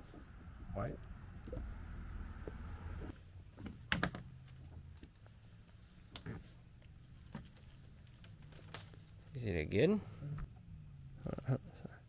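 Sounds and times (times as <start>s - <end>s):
twigs and branches snapping: 6.0s - 9.2s.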